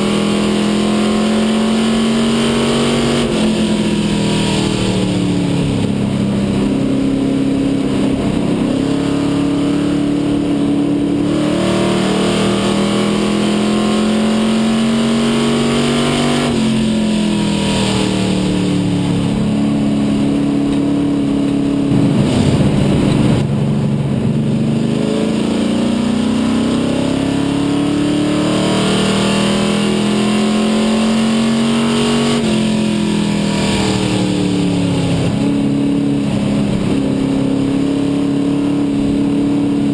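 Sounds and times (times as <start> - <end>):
race car engine from cockpit: 0.0 - 39.9.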